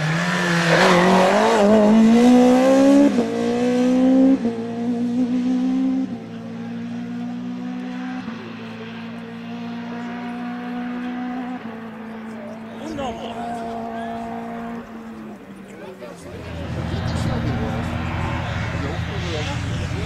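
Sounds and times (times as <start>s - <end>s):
rally car engine revving hard: 0.0s - 15.4s.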